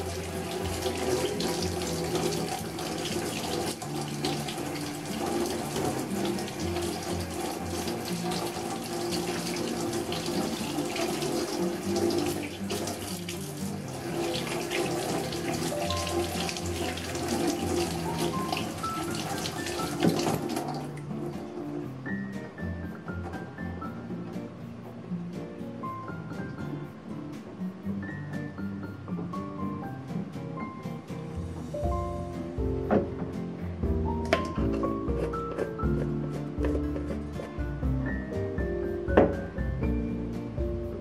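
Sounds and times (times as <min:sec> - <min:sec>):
tap water running into sink: 0:00.0 - 0:21.8, 0:34.2 - 0:37.6, 0:39.1 - 0:39.5.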